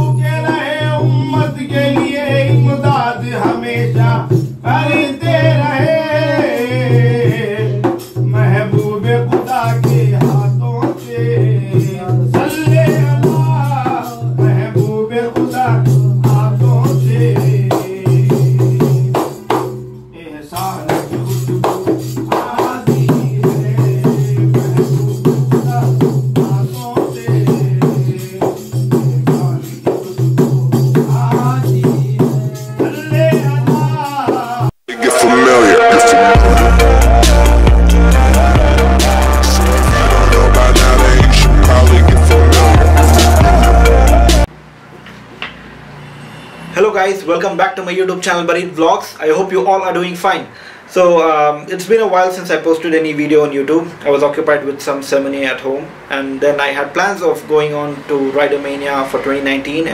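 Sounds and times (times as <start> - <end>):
man singing: 0.0 - 19.3, 20.1 - 44.5.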